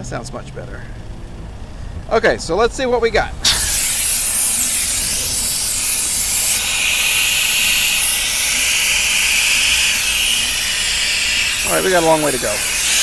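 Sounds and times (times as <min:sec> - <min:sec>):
compressed air hissing: 0:03.4 - 0:13.0.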